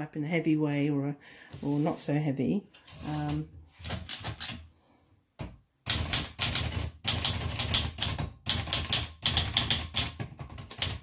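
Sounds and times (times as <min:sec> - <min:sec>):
typewriter keys striking: 0:04.0 - 0:04.6, 0:05.9 - 0:11.0.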